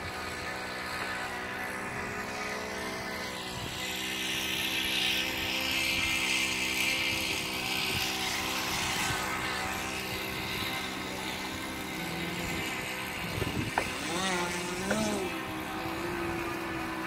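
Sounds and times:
model plane propeller buzzing: 0.0 - 17.0.

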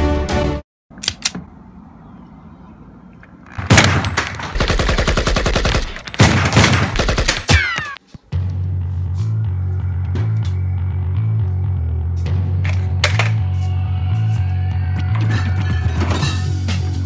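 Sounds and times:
automatic gunfire bursts: 3.6 - 7.6.

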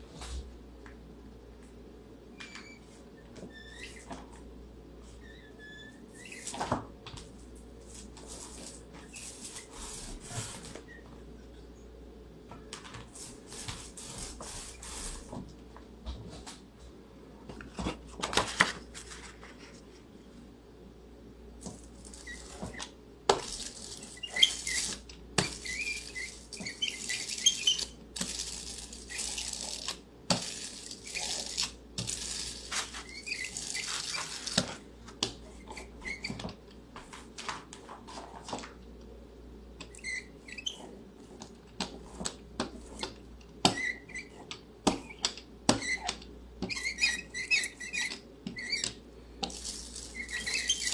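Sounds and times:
roller clicks and squeaks: 2.4 - 4.2, 22.0 - 34.8, 35.6 - 36.6, 39.8 - 41.0, 42.8 - 50.9
ink roller hissing over plate: 23.4 - 34.5, 49.4 - 50.9.

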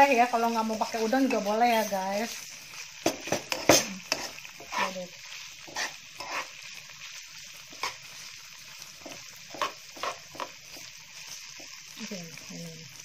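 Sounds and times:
shrimp sizzling in oil: 0.0 - 13.0
metal spatula scraping pan: 3.0 - 6.8.

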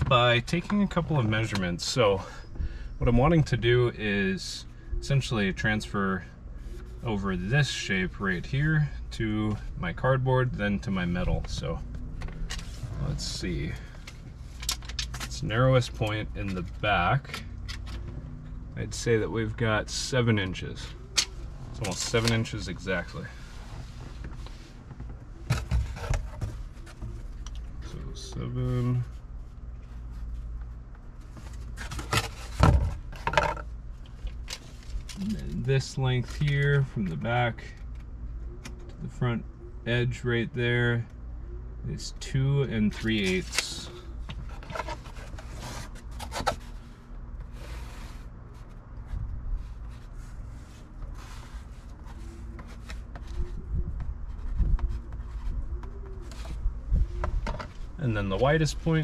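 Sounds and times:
steady low hum: 0.0 - 59.0
cardboard rustling and scraping: 21.7 - 28.0, 29.8 - 33.7, 42.9 - 58.0
cardboard rubbing and scraping: 44.4 - 53.6.

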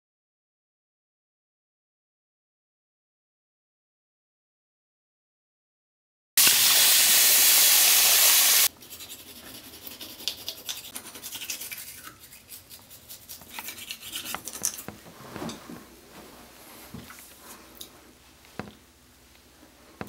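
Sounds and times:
loud rushing hiss: 6.4 - 8.7
toothbrush scrubbing teeth: 8.7 - 14.9.

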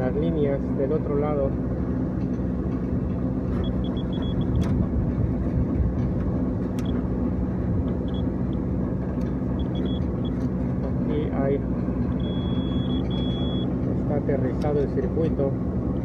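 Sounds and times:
machinery hum and rumble: 0.0 - 16.0
short high beeps: 9.6 - 10.4, 12.2 - 13.7.

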